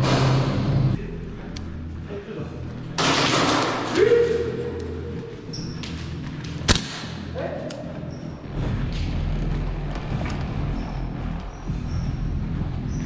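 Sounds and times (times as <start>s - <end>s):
sharp crack: 6.6s - 7.8s
noisy movement: 7.8s - 13.0s.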